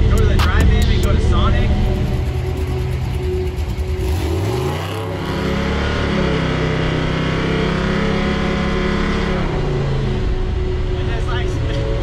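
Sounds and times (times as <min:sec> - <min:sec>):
pickup truck engine revving: 0:01.7 - 0:11.0.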